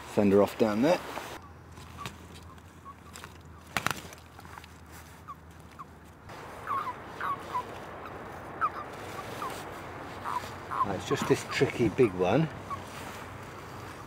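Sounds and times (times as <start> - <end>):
toads chirping: 5.8 - 13.9.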